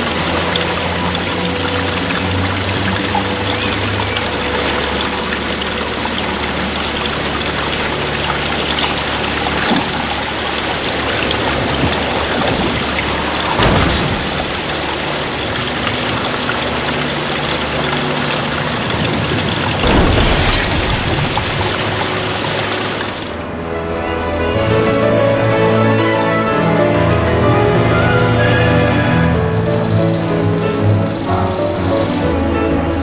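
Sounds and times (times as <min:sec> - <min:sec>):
rushing pouring water: 0:00.0 - 0:33.0.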